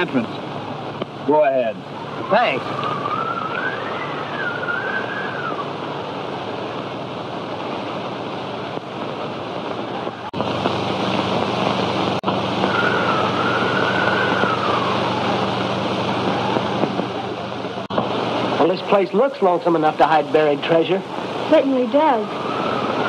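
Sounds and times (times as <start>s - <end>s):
low hum: 0.0s - 18.7s
film soundtrack hiss: 0.0s - 23.0s
wavering whistle-like tone: 1.9s - 5.9s, 12.5s - 16.8s, 21.9s - 23.0s.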